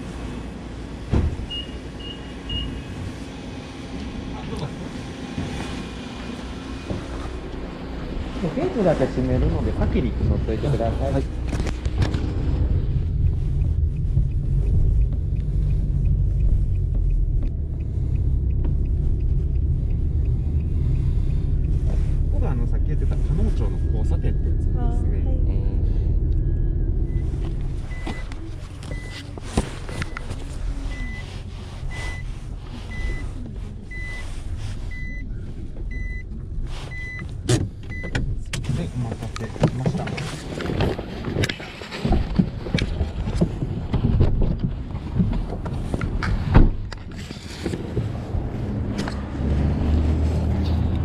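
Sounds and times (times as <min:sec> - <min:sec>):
car engine and road noise: 0:00.0 - 0:51.0
car warning beeps: 0:01.5 - 0:03.0, 0:26.2 - 0:38.2
faint regular ticking: 0:12.8 - 0:23.3.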